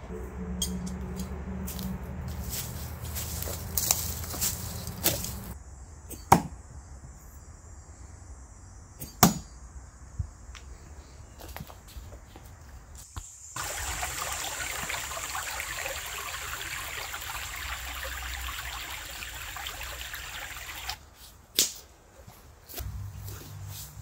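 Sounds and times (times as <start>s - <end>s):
creek trickling over rocks: 1.7s - 5.6s, 13.6s - 21.0s.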